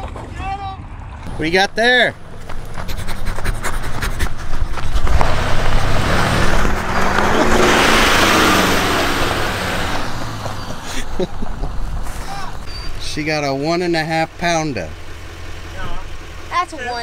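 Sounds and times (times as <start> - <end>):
tyres on gravel: 1.2 - 17.0
pickup truck engine passing: 1.3 - 17.0.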